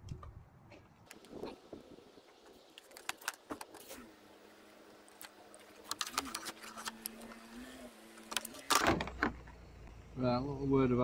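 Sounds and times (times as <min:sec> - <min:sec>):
cable clicking and rattling: 0:05.1 - 0:07.4.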